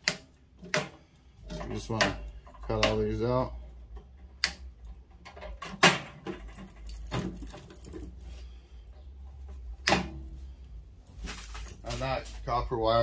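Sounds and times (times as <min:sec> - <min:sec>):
wire cutters snipping wires: 0:00.0 - 0:01.0, 0:04.3 - 0:04.8
metallic rattling of wires: 0:00.0 - 0:12.5.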